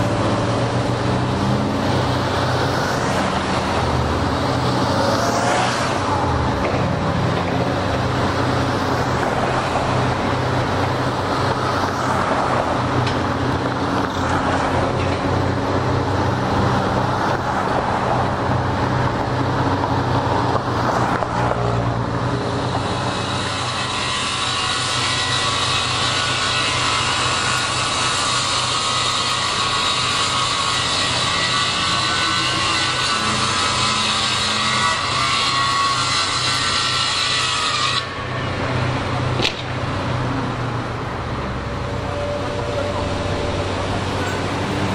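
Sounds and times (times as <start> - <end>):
construction machinery engines: 0.0 - 44.9
street traffic passing: 0.0 - 44.9.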